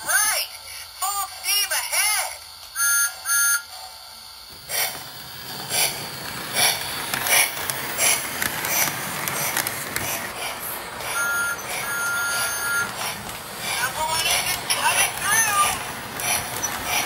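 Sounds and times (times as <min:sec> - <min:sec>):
toy train wheels rumbling on track: 0:00.0 - 0:17.0
toy train electronic toots: 0:01.8 - 0:04.9, 0:10.4 - 0:17.0
electronic steam chuffs: 0:02.8 - 0:17.0.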